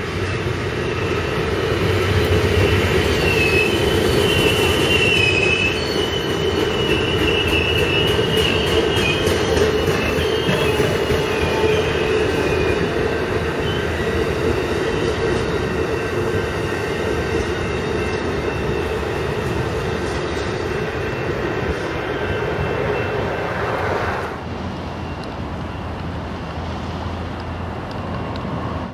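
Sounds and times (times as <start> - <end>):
train wheels on rails: 0.0 - 28.9
high squeal of wheels: 2.4 - 24.3.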